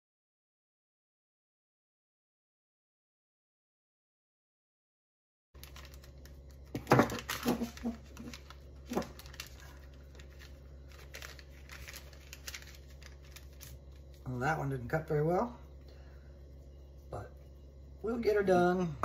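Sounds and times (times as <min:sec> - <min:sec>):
dough tearing: 0:05.6 - 0:14.2
parchment paper crinkling: 0:05.6 - 0:14.4
steady low hum: 0:05.6 - 0:19.0.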